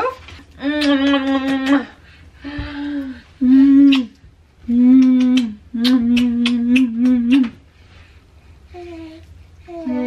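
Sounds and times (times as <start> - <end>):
woman humming: 0.0 - 7.6.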